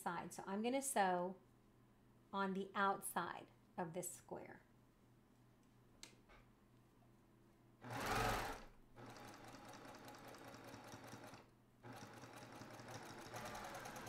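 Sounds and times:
sewing machine stitching: 7.8 - 14.0.

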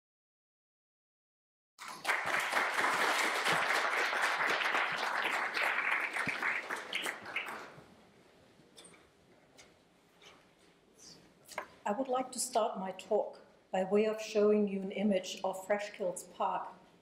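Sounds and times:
audience applauding: 1.8 - 7.8.

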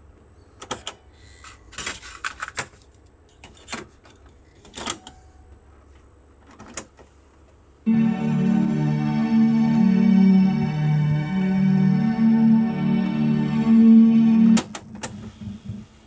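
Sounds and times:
calm ambient music: 7.9 - 15.7.

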